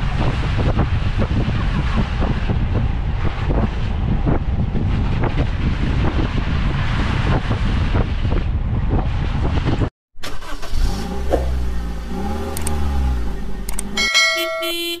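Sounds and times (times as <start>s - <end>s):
low engine-like hum: 0.0s - 9.2s, 10.8s - 14.9s
road and wind rumble from car: 0.0s - 15.0s
sharp clicks: 12.5s - 12.9s, 13.6s - 14.0s
bright electronic chime: 14.0s - 15.0s.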